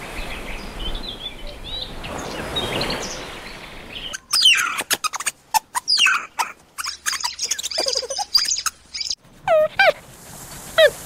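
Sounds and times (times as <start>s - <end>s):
faint bird chirps: 4.0s - 9.2s
loud sharp chirping calls: 4.0s - 9.2s.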